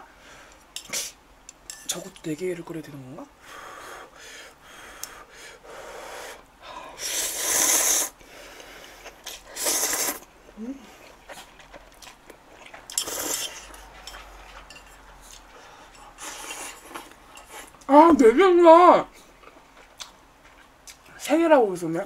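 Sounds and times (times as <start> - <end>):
person slurping noodles: 7.0 - 8.2, 9.0 - 10.8, 12.9 - 13.8.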